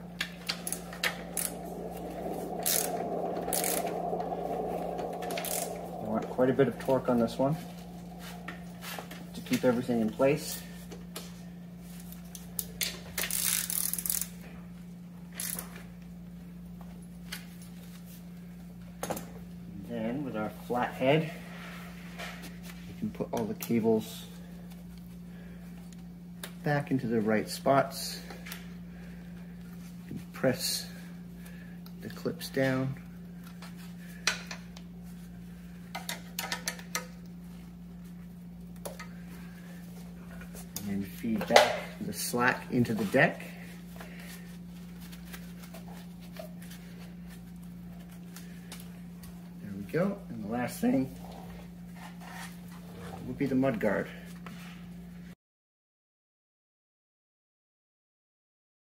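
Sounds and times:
steady low hum: 0.0s - 55.3s.

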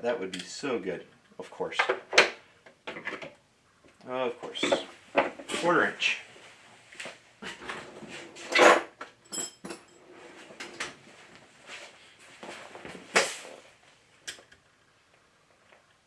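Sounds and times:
ringing metal clink: 9.3s - 10.0s.

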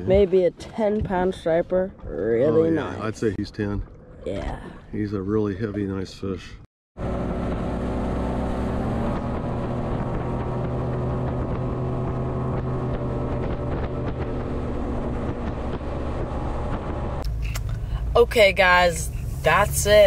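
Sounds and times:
boat engine droning: 7.0s - 17.4s
hull rushing through water: 7.4s - 17.0s.

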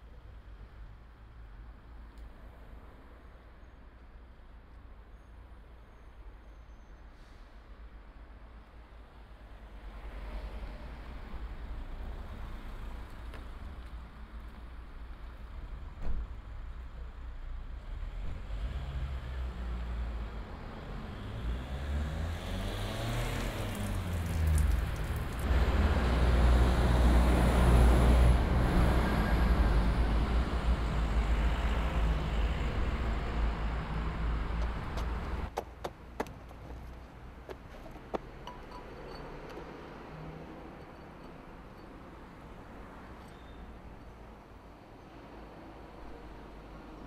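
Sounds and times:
street background: 0.0s - 47.0s
vehicle engine passing by: 18.4s - 35.5s.

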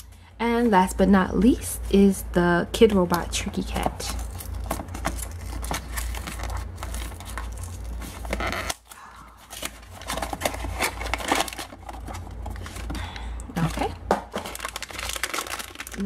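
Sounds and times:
foil bag crinkling: 3.5s - 16.0s
cardboard flaps tearing and scraping: 4.1s - 8.9s, 14.5s - 16.0s.

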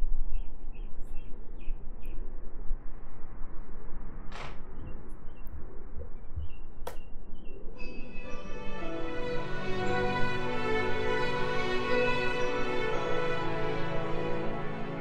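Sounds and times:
sharp click: 6.8s - 7.1s.

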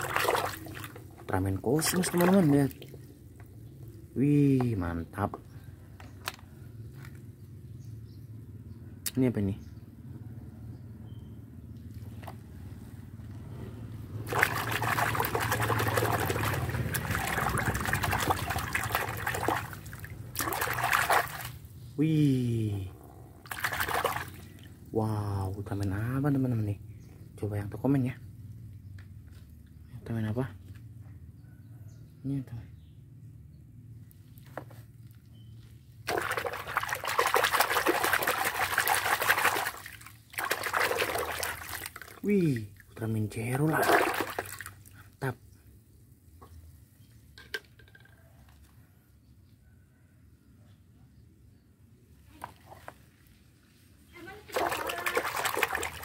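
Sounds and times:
water splashing and sloshing: 0.0s - 4.1s, 13.9s - 21.8s, 23.4s - 24.9s, 34.3s - 45.0s, 52.4s - 56.0s.

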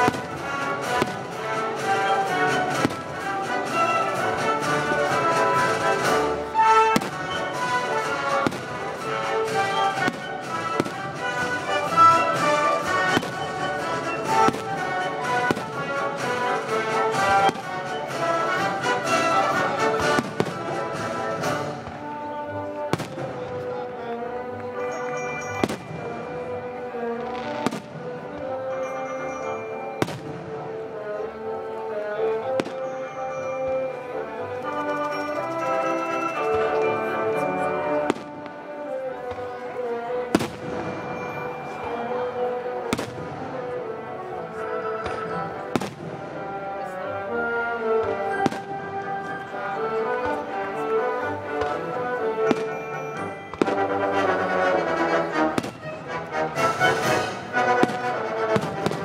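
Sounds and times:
fireworks bangs: 0.0s - 3.4s, 6.1s - 16.0s, 20.0s - 22.2s, 22.9s - 23.6s, 27.2s - 28.5s, 40.3s - 41.0s, 45.1s - 46.2s, 48.0s - 48.8s, 52.4s - 54.0s, 57.2s - 59.0s
orchestra playing: 0.0s - 59.0s.

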